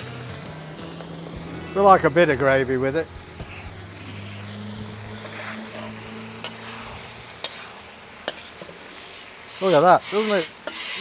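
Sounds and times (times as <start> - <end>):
low hum: 0.0 - 7.3
food sizzling in a wok: 0.0 - 11.0.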